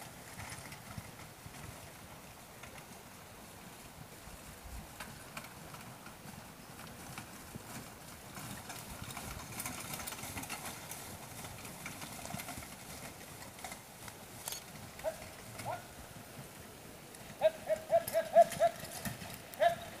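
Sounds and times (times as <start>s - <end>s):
horses trotting on grass: 0.0s - 20.0s.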